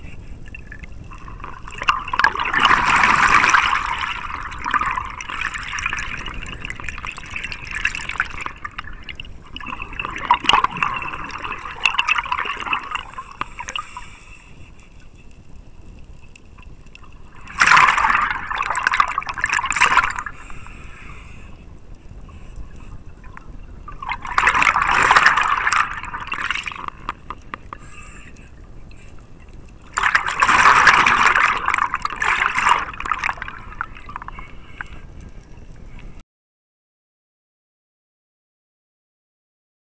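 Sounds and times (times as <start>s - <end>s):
exhaled breath bubbling underwater: 0.0s - 15.0s
faint crackling: 0.0s - 36.2s.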